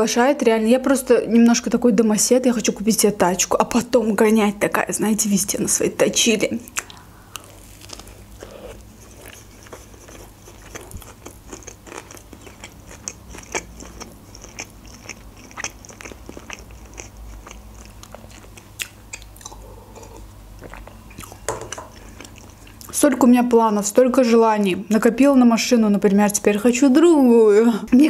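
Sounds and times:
person chewing a burger: 0:06.8 - 0:22.9.

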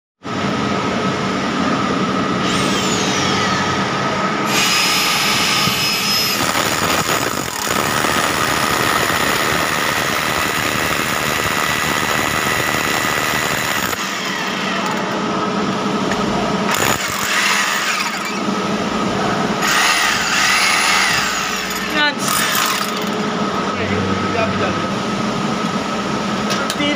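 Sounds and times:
hammer drill boring into concrete: 0:04.5 - 0:15.0, 0:16.7 - 0:18.4, 0:19.6 - 0:23.2.

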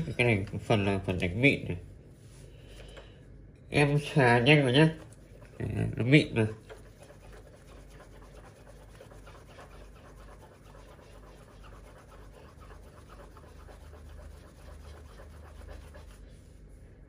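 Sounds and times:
metal rubbed on cloth: 0:05.2 - 0:16.7.

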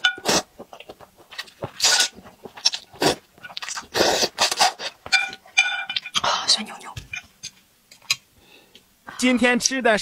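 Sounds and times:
person slurping noodles: 0:00.2 - 0:00.5, 0:02.7 - 0:05.0.

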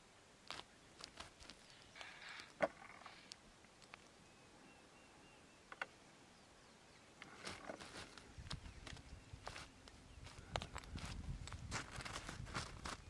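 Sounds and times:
small knocks and rustles: 0:07.2 - 0:13.0.

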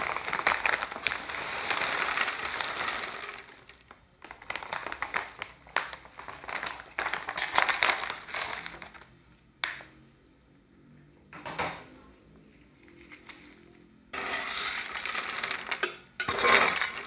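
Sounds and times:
plastic snack bag crinkling: 0:00.0 - 0:09.1, 0:12.8 - 0:17.0.

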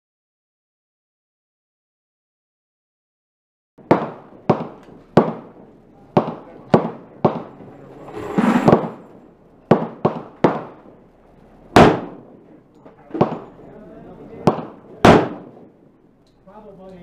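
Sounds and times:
pistol gunshots: 0:03.8 - 0:07.8, 0:08.6 - 0:13.7, 0:14.4 - 0:15.9.

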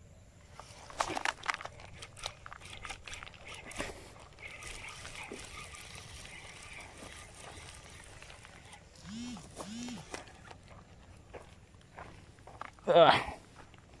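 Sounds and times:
steady high hum: 0:00.0 - 0:14.0
fishing reel clicks and knocks: 0:01.1 - 0:10.6.

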